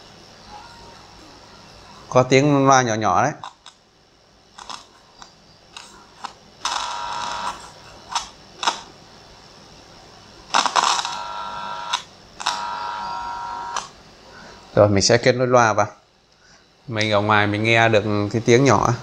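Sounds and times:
faint buzzy tone from loudspeaker: 5.9s - 8.0s, 9.0s - 16.1s.

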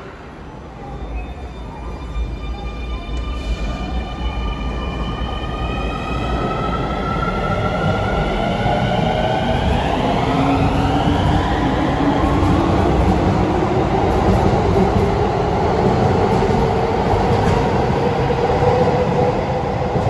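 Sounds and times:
train rumble: 6.2s - 20.0s.

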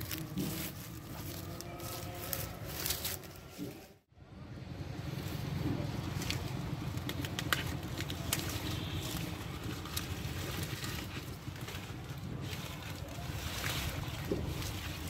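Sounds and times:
plant stalks rustling and snapping: 0.0s - 3.8s, 5.8s - 15.0s
sharp cracks of stalks: 6.1s - 15.0s
wind rumble on microphone: 9.4s - 15.0s.

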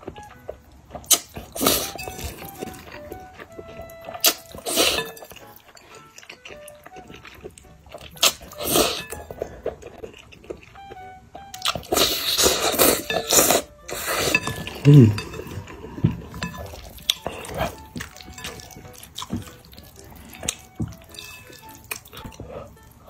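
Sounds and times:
soft background music: 0.0s - 23.0s
loud noodle slurping: 4.2s - 5.2s, 8.2s - 9.2s, 11.9s - 15.1s.

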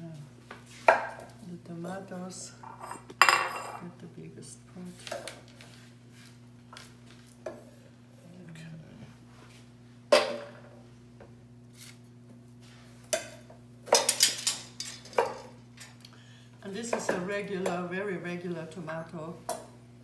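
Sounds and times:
steady low hum: 0.0s - 20.0s
utensils knocking and clinking: 13.9s - 16.0s.

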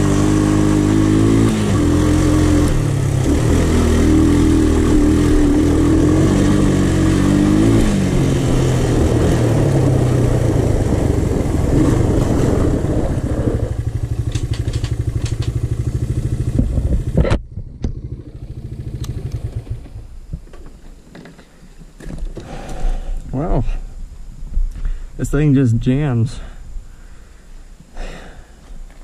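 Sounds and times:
quad bike engine idling: 0.0s - 20.2s.

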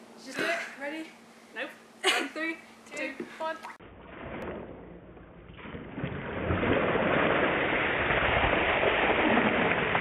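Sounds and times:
water pouring and splashing: 5.5s - 10.0s.

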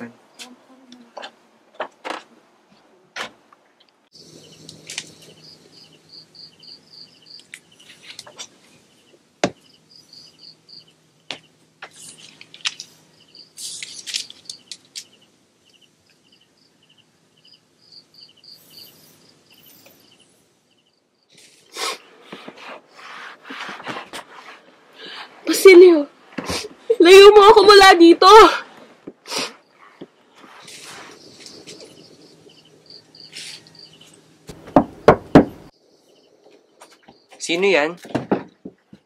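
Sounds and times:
crickets chirping: 4.1s - 23.0s, 26.8s - 38.0s
rustling and shuffling: 7.4s - 9.3s, 11.3s - 15.2s, 21.3s - 27.6s, 28.6s - 35.7s.

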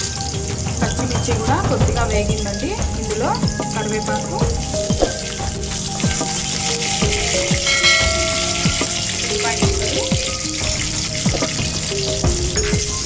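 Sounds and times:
hot oil sizzling and spitting: 0.0s - 13.0s
steel spoon stirring: 7.4s - 9.5s.

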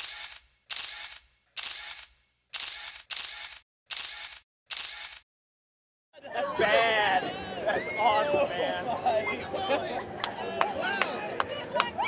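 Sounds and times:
camera shutter hiss bursts: 0.0s - 5.2s.

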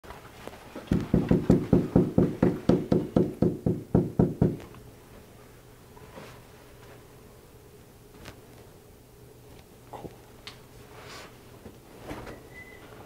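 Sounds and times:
knuckles knocking on door: 0.9s - 4.6s.

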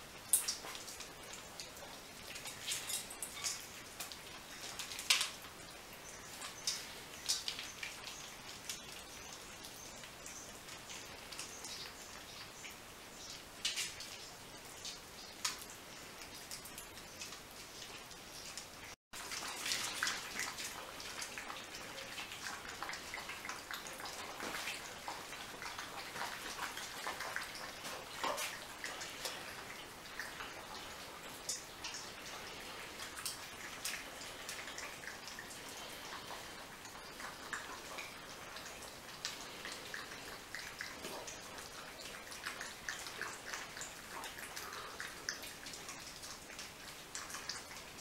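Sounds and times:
puppies lapping water: 14.8s - 48.0s
puppies eating dry kibble: 19.2s - 47.8s.

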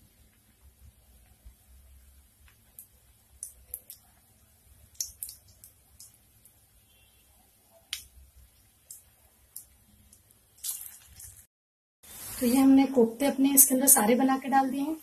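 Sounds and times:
hot oil popping and crackling: 0.0s - 6.7s, 7.9s - 12.7s.

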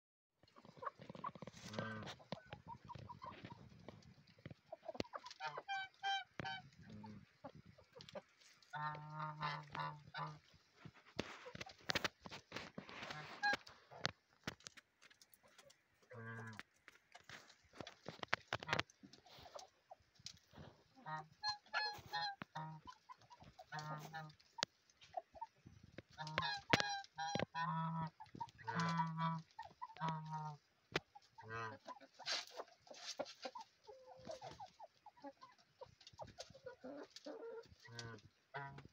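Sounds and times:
hens clucking softly: 0.4s - 38.9s
geese honking: 4.7s - 7.3s, 8.0s - 10.5s, 21.0s - 24.6s, 26.2s - 30.6s, 36.7s - 38.9s.

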